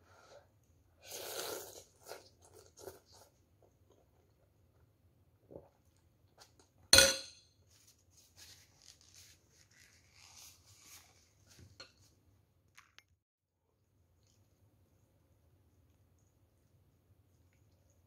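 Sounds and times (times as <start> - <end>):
paper tissue rustling: 7.7 - 11.6.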